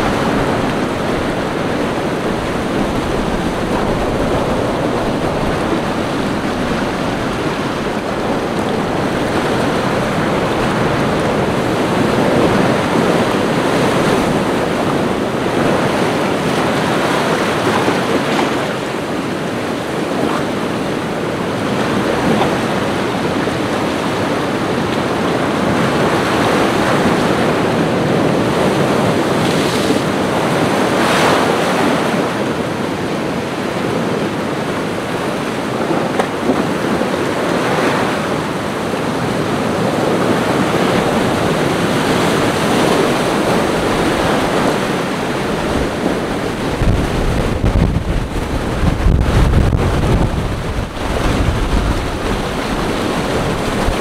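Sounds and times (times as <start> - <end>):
ocean waves breaking: 0.0 - 54.0
wave crashes: 35.7 - 54.0.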